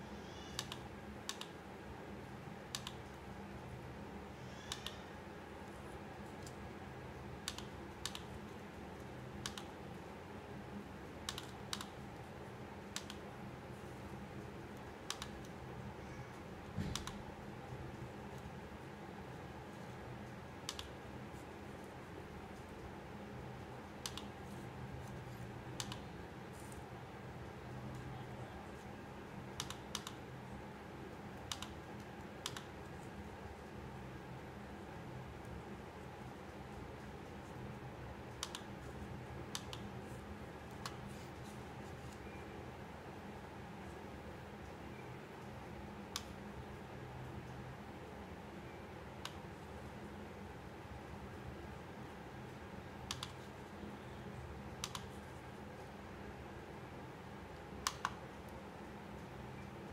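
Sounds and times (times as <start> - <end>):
steady low hum: 0.0 - 59.9
computer mouse button clicks: 4.6 - 5.0, 57.8 - 58.2.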